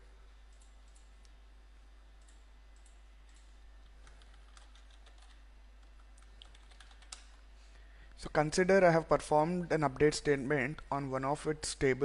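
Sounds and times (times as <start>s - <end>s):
keyboard typing: 2.2s - 7.4s.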